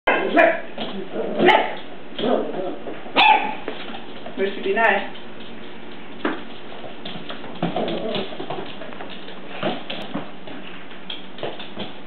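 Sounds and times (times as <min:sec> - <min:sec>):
dog yips: 0:03.2 - 0:03.6
dog claws clicking on wooden floor: 0:03.6 - 0:12.0.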